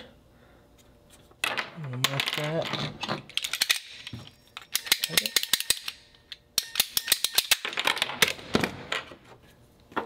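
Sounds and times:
plastic parts clicking and clattering: 1.4s - 6.0s, 6.7s - 9.1s.

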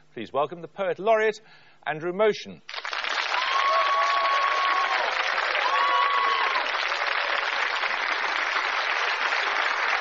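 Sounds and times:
studio audience applauding: 2.7s - 10.0s.

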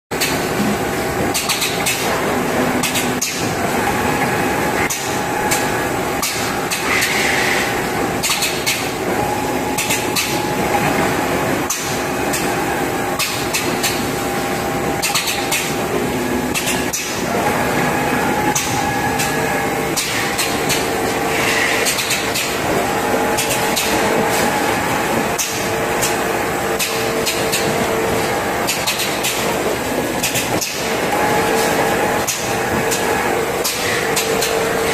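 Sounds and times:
filling machine hum: 0.2s - 34.9s
nozzle mechanism clicks and clacks: 1.3s - 2.2s, 8.2s - 8.9s, 15.0s - 15.8s, 21.8s - 22.6s, 26.8s - 27.8s, 28.6s - 29.6s, 30.2s - 30.8s, 32.2s - 34.9s.

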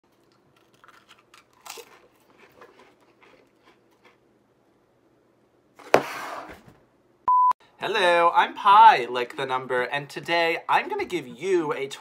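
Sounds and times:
crisps crunching: 0.1s - 4.2s.

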